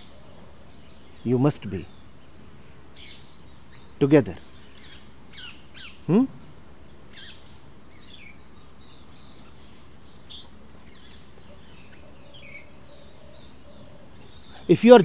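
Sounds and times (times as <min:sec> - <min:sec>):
background hiss: 0:00.0 - 0:15.0
birds chirping: 0:00.0 - 0:15.0
man speaking a word: 0:06.1 - 0:06.4.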